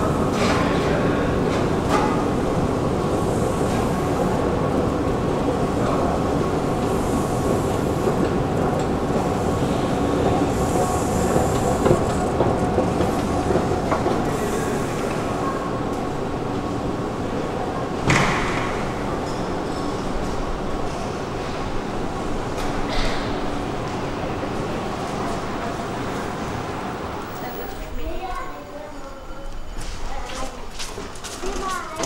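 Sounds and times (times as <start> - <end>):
metro train running: 0.0 - 32.0.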